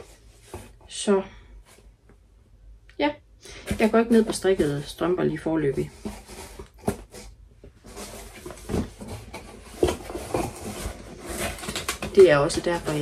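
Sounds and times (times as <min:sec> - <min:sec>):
packaging rustling: 0:03.5 - 0:13.0.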